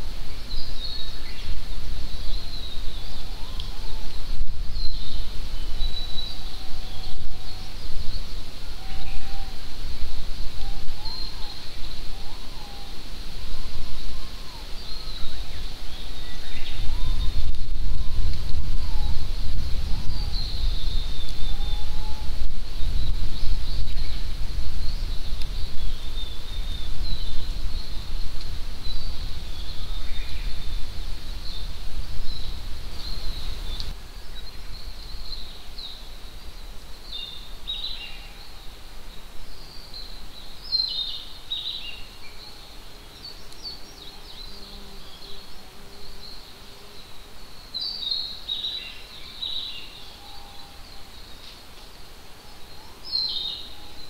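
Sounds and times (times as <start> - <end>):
wind rumble on microphone: 0.0 - 42.1
small birds chirping: 0.0 - 54.0.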